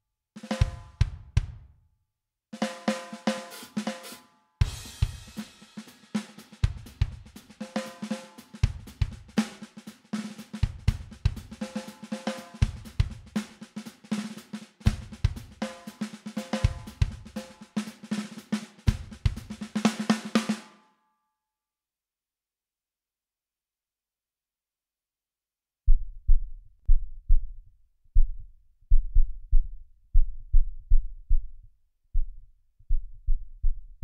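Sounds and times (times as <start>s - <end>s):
drum kit playing rock beat: 0.4s - 1.6s, 2.6s - 20.6s.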